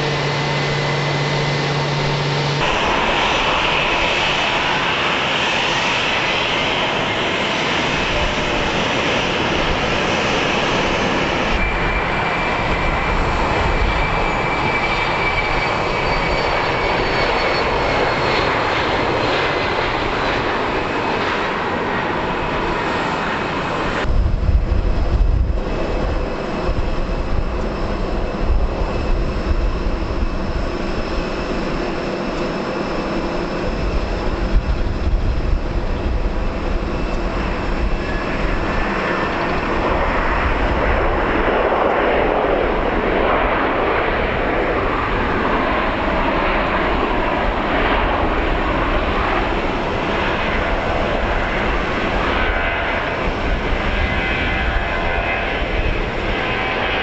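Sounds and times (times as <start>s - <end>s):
distant jet noise: 0.0s - 57.0s
jet engines whining: 0.0s - 57.0s
unsteady low rumble: 24.0s - 31.3s, 33.2s - 43.5s.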